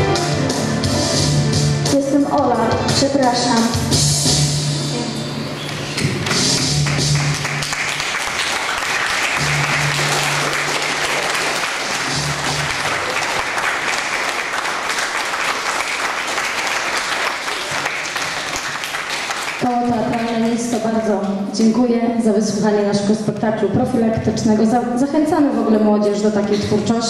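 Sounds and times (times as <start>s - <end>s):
music playing: 0.0s - 15.0s
audience applauding: 5.7s - 20.8s.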